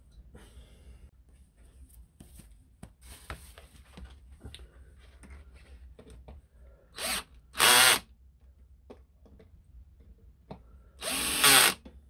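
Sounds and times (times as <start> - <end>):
cordless drill driving screws: 7.0 - 8.1, 11.0 - 11.8.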